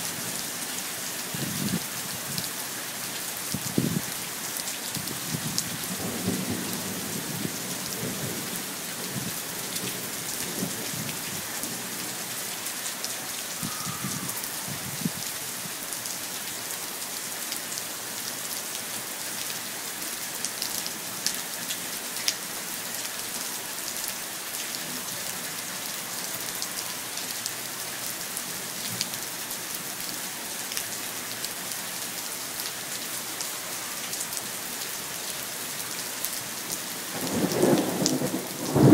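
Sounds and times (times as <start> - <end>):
heavy rain on pavement: 0.0 - 38.9
thunder rumbling: 37.2 - 38.9.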